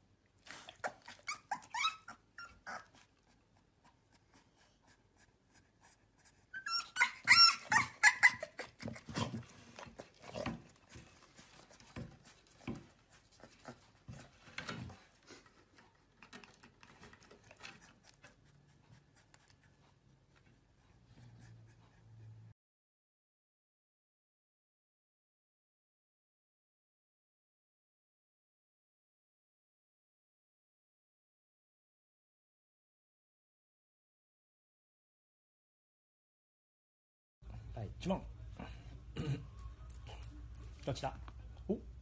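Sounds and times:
dog yipping and whining: 0:00.5 - 0:03.1, 0:06.5 - 0:09.4.

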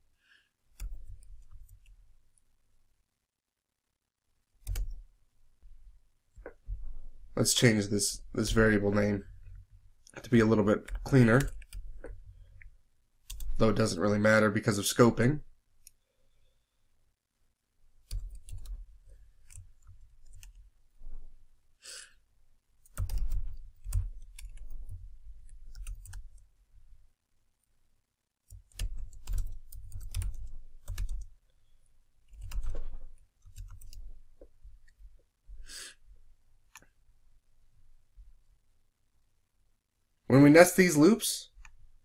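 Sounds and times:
keyboard key clicks: 0:04.6 - 0:05.0.

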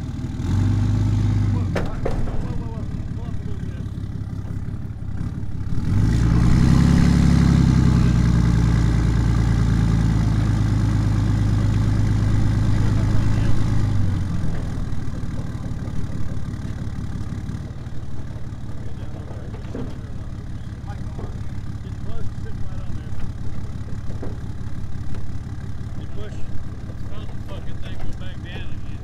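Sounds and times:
vehicle engine revving: 0:00.0 - 0:29.0.

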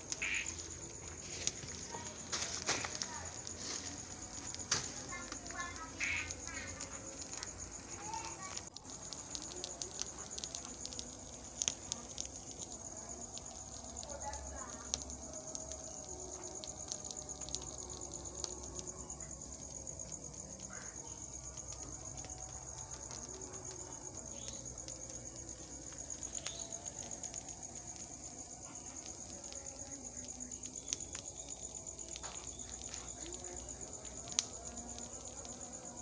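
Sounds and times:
insects trilling: 0:00.0 - 0:36.0
faint clicks: 0:25.8 - 0:35.7.

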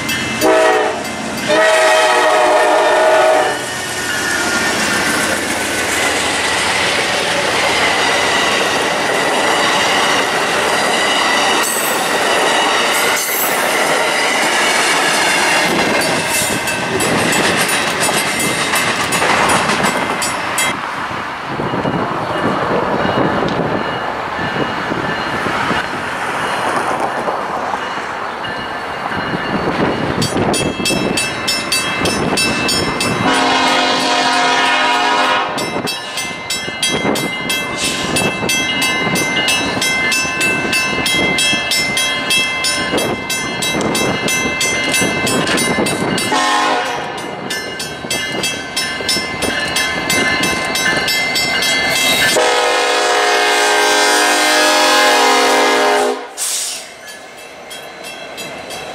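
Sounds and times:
diesel freight train passing: 0:00.0 - 0:58.9
train air horn blasts: 0:00.4 - 0:03.7, 0:33.2 - 0:35.7, 0:46.3 - 0:47.2, 0:52.3 - 0:56.8
bell ringing: 0:07.2 - 0:20.8, 0:35.6 - 0:46.5, 0:47.1 - 0:52.4.

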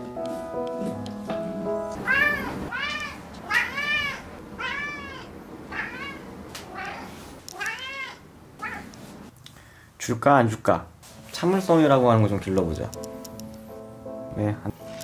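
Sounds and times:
cat meowing: 0:02.0 - 0:09.0.

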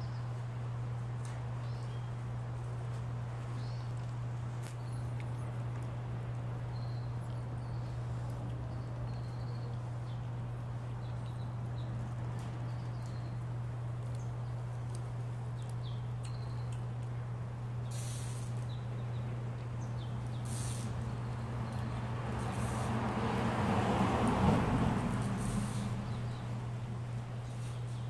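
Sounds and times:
steady low hum: 0:00.0 - 0:28.0
rustle: 0:17.9 - 0:18.8, 0:20.3 - 0:28.0.

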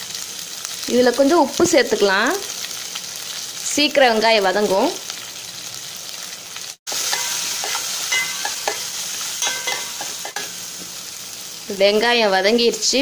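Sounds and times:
onions sizzling in oil: 0:00.0 - 0:13.0
steel spoon clinking against pot: 0:07.1 - 0:10.6.

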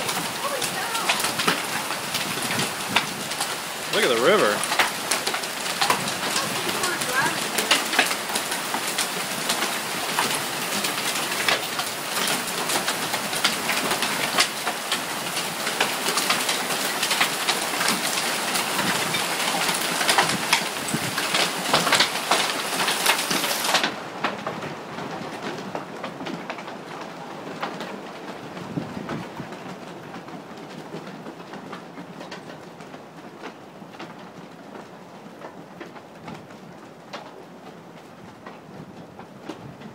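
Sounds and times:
heavy rain rushing: 0:00.0 - 0:34.8
hailstones hitting wooden deck: 0:00.0 - 0:39.9.

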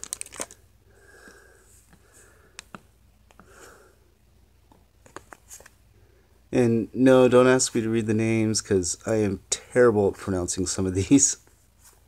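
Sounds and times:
soft breaths: 0:00.4 - 0:04.2
trading cards clicking and tapping: 0:04.7 - 0:05.4.

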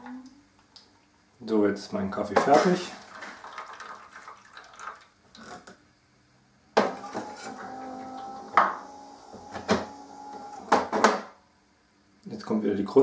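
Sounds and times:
coffee machine motor whine: 0:06.8 - 0:11.4.

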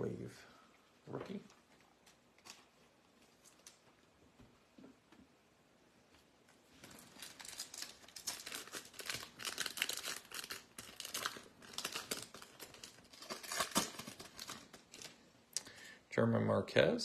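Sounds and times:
foil wrapper tearing and crinkling: 0:06.8 - 0:15.2.

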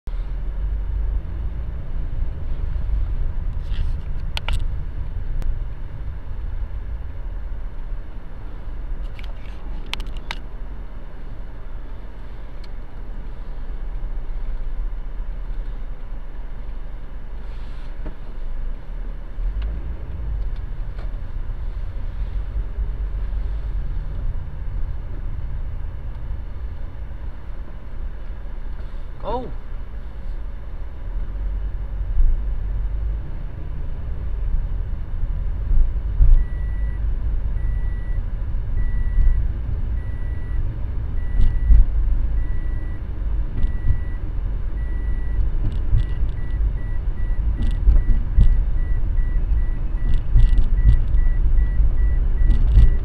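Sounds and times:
car engine and road noise: 0:00.0 - 0:53.0
sharp clicks: 0:52.4 - 0:53.0.

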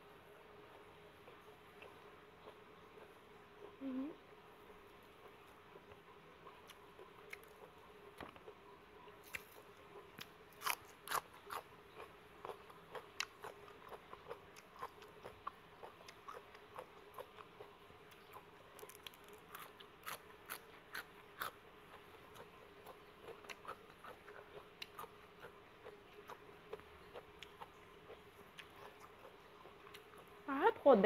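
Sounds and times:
faint steady hum: 0:00.0 - 0:31.0
person chewing and crunching food: 0:06.4 - 0:08.6, 0:09.2 - 0:30.4.

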